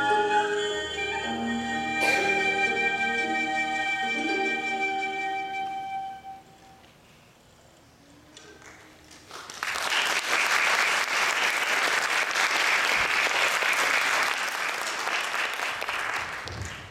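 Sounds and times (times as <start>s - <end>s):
audience applause: 8.6s - 16.9s.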